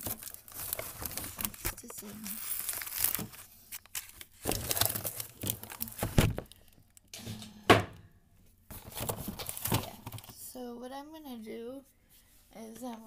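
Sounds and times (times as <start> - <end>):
plastic and cardboard crinkling: 0.0 - 6.8, 8.7 - 10.5.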